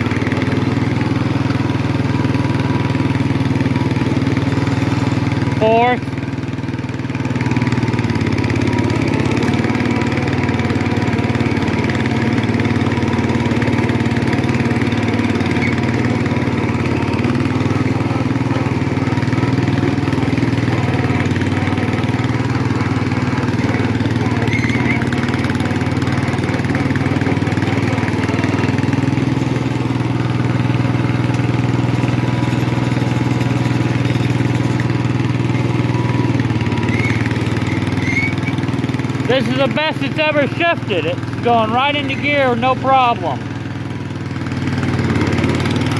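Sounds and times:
garden tractor engine running: 0.0s - 45.9s.

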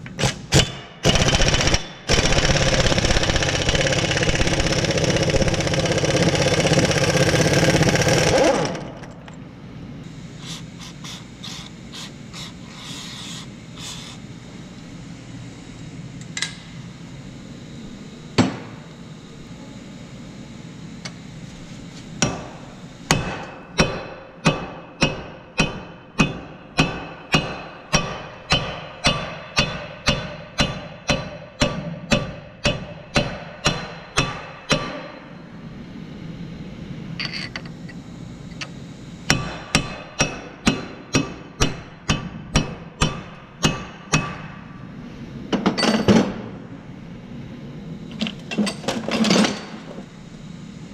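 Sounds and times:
hammer striking steel punch: 23.1s - 35.2s, 39.3s - 44.6s.

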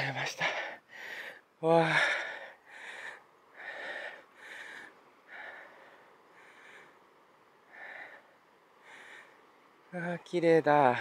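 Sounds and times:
person breathing hard: 0.4s - 7.1s, 7.7s - 9.5s.

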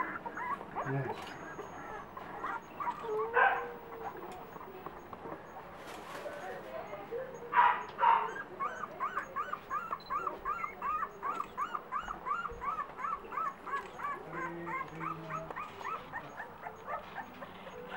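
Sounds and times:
puppy squealing: 0.0s - 4.8s, 7.9s - 17.9s
puppy squeaking: 0.0s - 5.7s, 6.4s - 17.9s.

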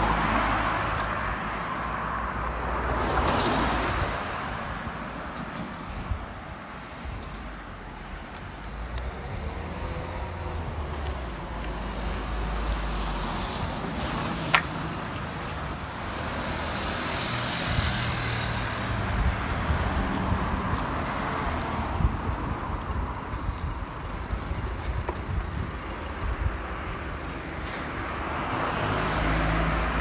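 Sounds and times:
car passing by: 28.2s - 30.0s.

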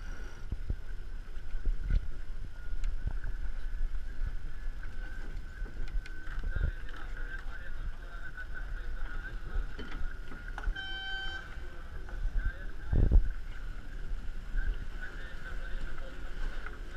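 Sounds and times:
wind and water noise: 0.0s - 16.9s
short beep: 10.7s - 11.6s.

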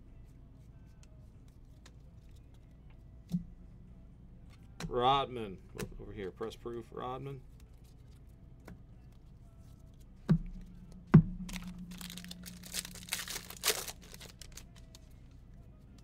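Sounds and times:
foil wrapper crinkling and tearing: 11.4s - 15.1s.

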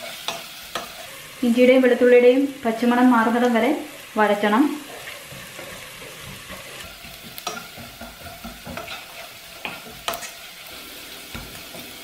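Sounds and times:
spatula scraping a pan: 0.0s - 1.4s, 4.8s - 12.0s
vegetables sizzling in oil: 0.0s - 12.0s.

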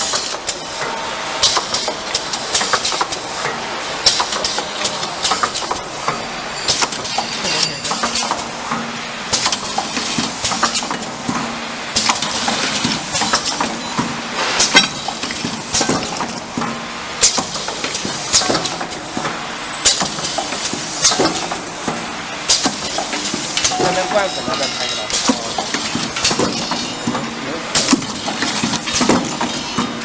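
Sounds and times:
sharp pneumatic clacks: 0.0s - 23.8s, 24.6s - 30.0s
machine clattering: 12.0s - 29.9s.

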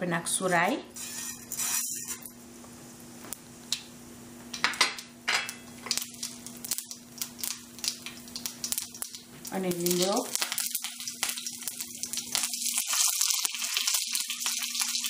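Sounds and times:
faint oil sizzle: 0.2s - 15.0s
seeds hissing in hot oil: 0.4s - 2.3s, 5.8s - 15.0s.

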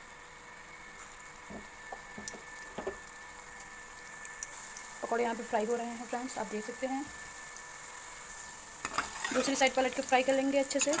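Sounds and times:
oil sizzling: 0.0s - 11.0s.

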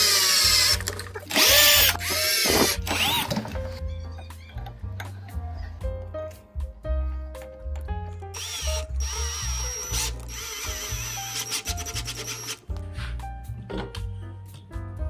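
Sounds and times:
electric screwdriver whirring: 0.0s - 3.4s, 8.4s - 12.6s
background music: 0.0s - 15.0s.

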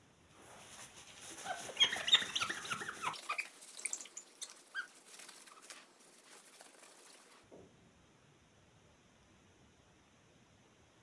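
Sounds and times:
paper towel squeaking on glass: 1.1s - 5.8s.

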